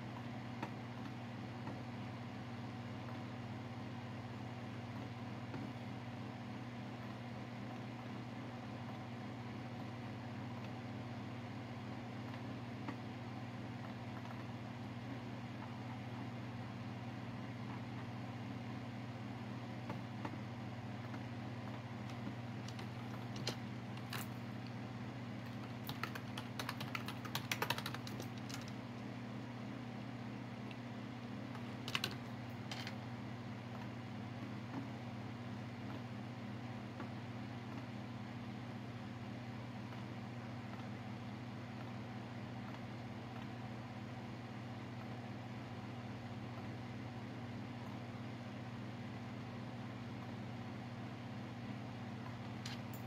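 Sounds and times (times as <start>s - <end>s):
low mechanical hum: 0.0s - 53.0s
computer keyboard typing: 22.1s - 24.5s, 25.4s - 28.8s, 31.6s - 33.0s.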